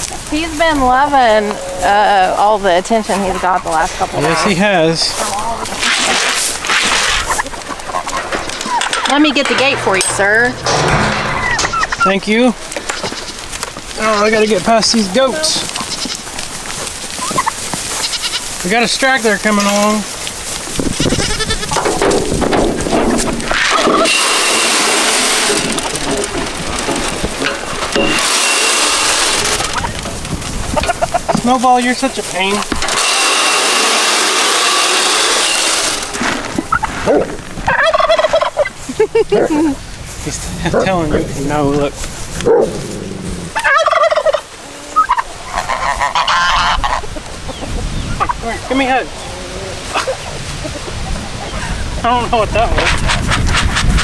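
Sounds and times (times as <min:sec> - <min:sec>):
turkeys gobbling: 0:00.0 - 0:40.0, 0:41.9 - 0:52.0
goats bleating: 0:12.7 - 0:16.4, 0:17.2 - 0:18.8, 0:20.9 - 0:22.2.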